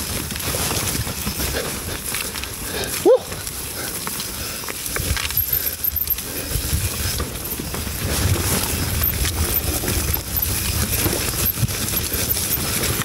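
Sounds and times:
bike tyres rumbling on trail: 0:00.0 - 0:13.0
metallic bike rattles: 0:03.5 - 0:13.0.

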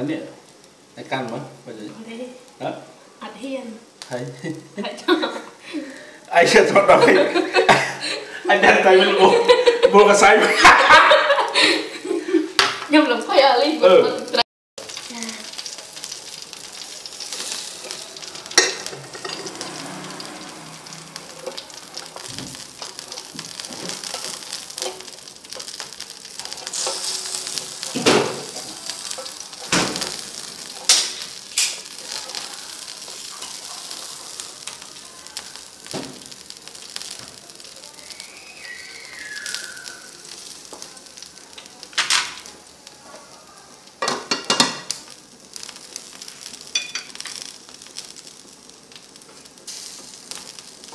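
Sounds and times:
meat sizzling on a grill: 0:00.0 - 0:50.9.

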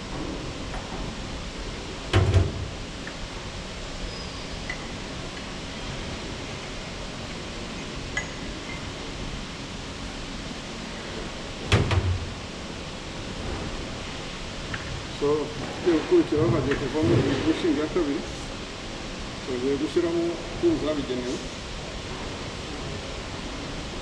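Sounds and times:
steady background hiss: 0:00.0 - 0:24.0
heavy metal clunk: 0:02.1 - 0:02.8, 0:11.7 - 0:12.4.

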